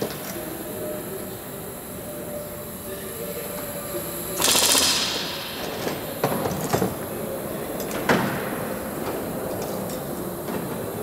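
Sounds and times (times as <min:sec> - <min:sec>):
pneumatic rivet gun hammering: 0:04.4 - 0:06.8.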